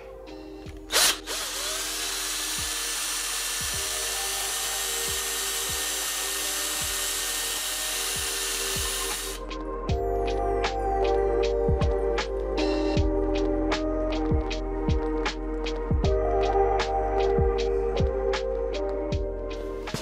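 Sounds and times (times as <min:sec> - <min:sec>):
background music with soft beat: 0:00.0 - 0:20.0
cordless drill boring into plastic: 0:00.8 - 0:09.4.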